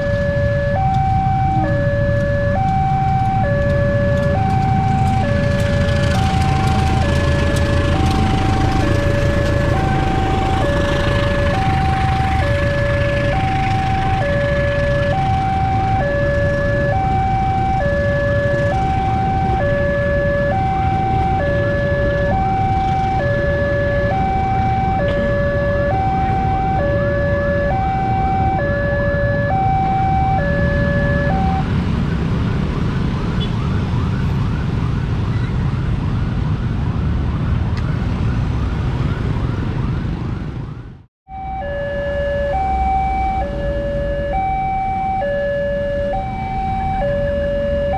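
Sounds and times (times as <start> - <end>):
freight train wagons rumbling: 2.5 - 14.2
level crossing two-tone alarm: 41.3 - 47.9.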